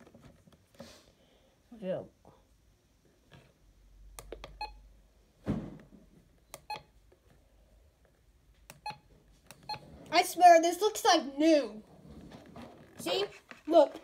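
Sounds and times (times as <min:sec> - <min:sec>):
electronic key-press beeps: 0:04.2 - 0:04.8, 0:06.6 - 0:06.9, 0:08.7 - 0:09.0.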